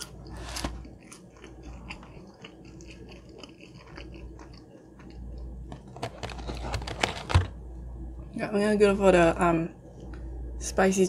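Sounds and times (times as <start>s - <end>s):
person chewing food: 0.0s - 6.7s.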